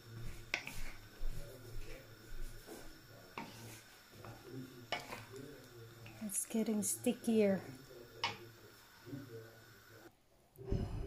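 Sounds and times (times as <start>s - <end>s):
low steady hum: 0.0s - 11.0s
wooden spatula scraping a pan: 0.3s - 1.1s, 2.5s - 5.3s
wood knocking on a pan: 0.5s - 0.9s.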